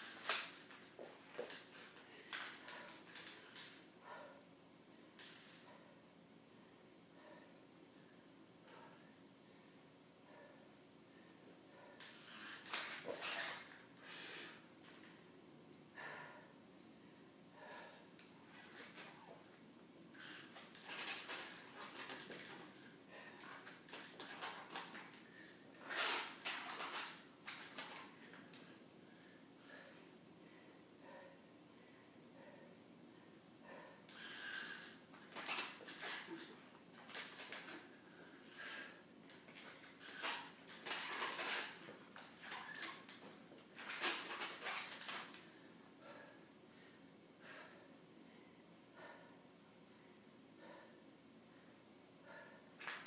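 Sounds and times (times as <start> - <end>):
heavy uneven breathing: 15.9 - 19.5, 20.2 - 43.4, 44.3 - 53.0.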